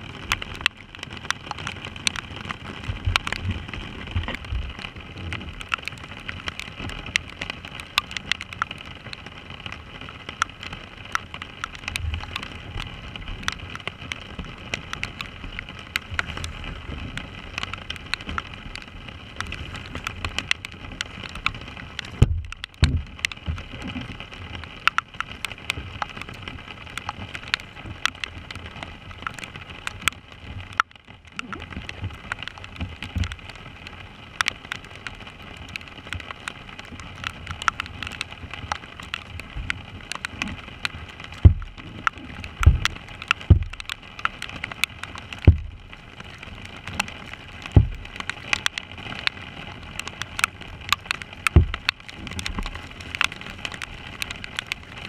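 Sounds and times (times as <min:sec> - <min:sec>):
heavy rain on a kayak: 0:00.0 - 0:55.0
low thumps: 0:22.2 - 0:23.1, 0:41.4 - 0:41.8, 0:42.6 - 0:43.9, 0:45.5 - 0:45.8, 0:47.8 - 0:48.1, 0:51.6 - 0:51.9.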